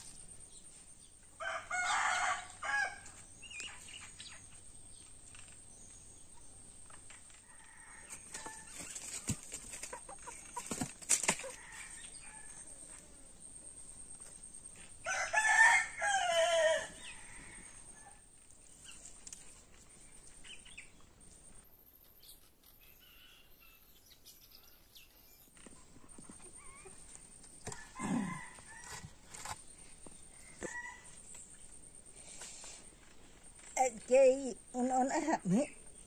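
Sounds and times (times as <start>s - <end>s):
rooster crowing: 1.4s - 3.2s, 15.0s - 18.2s, 27.6s - 29.3s.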